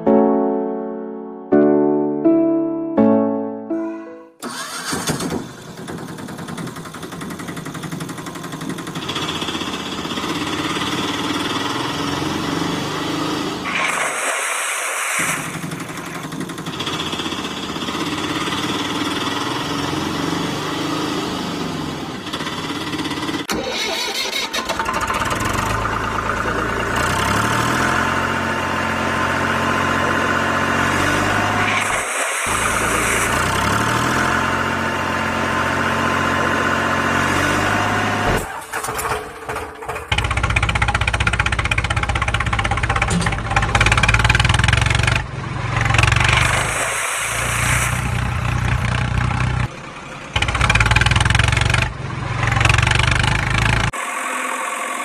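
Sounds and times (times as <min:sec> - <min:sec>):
motor engine running: 0:04.4 - 0:11.9, 0:24.8 - 0:46.8, 0:47.5 - 0:55.0.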